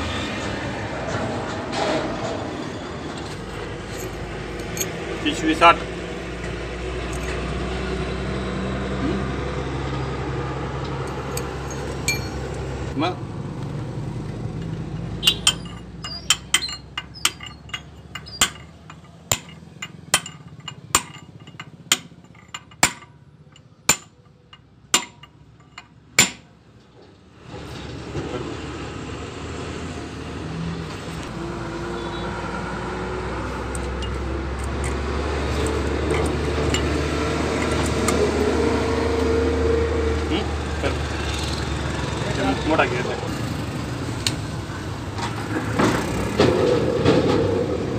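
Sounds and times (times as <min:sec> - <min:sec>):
hammer tapping on metal: 0:12.1 - 0:12.5, 0:15.3 - 0:26.5.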